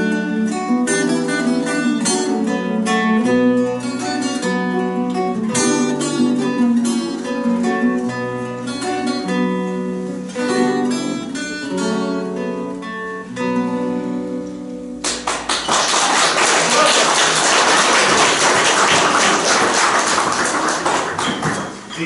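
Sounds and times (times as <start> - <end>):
acoustic guitars playing: 0.0 - 22.0
audience applause: 15.1 - 21.8.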